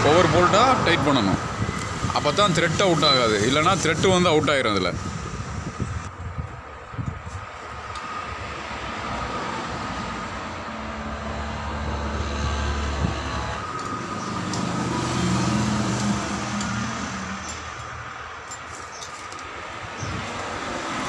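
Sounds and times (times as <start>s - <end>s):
engine humming: 9.1s - 21.0s.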